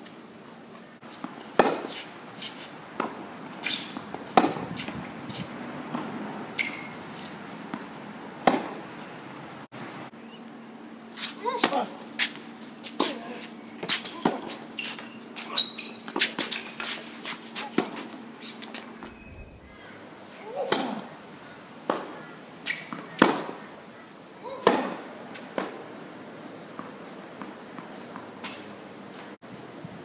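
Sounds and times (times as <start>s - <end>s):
tennis balls bouncing on court: 1.1s - 2.0s, 3.0s - 9.4s, 21.8s - 23.6s
tennis balls struck by rackets: 1.2s - 2.1s, 2.9s - 9.1s, 11.4s - 13.2s, 17.5s - 18.9s, 20.6s - 21.1s, 21.8s - 23.6s, 24.5s - 25.9s.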